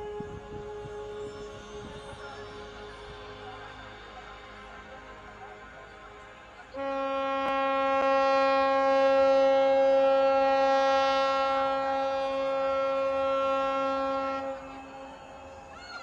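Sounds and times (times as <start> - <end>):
ship's horn blast: 0.0 - 15.7.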